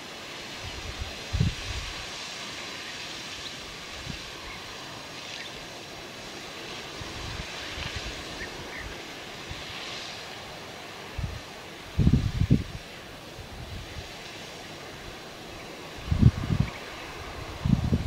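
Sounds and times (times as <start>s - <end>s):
steady rushing hiss: 0.0s - 18.0s
wind buffeting microphone: 0.6s - 2.1s, 11.1s - 14.2s, 15.8s - 18.0s.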